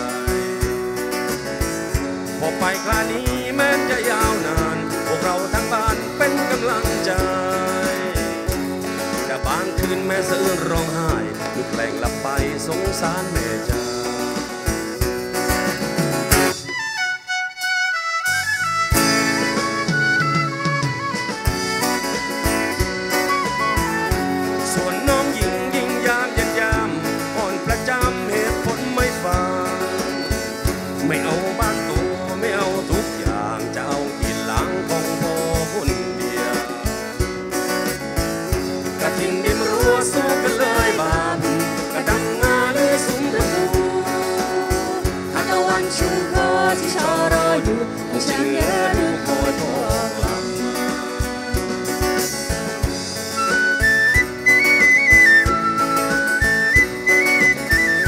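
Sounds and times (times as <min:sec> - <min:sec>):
drum kit beat: 0:00.0 - 0:16.9, 0:18.4 - 0:58.0
electric bass: 0:00.0 - 0:17.3, 0:18.3 - 0:58.0
strummed acoustic guitar: 0:00.0 - 0:17.6, 0:18.2 - 0:58.0
flute melody: 0:16.4 - 0:32.6, 0:50.4 - 0:58.0.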